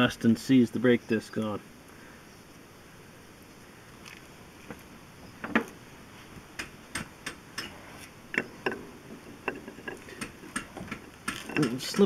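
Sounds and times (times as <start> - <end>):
brake parts clicking and knocking: 7.0 - 12.0.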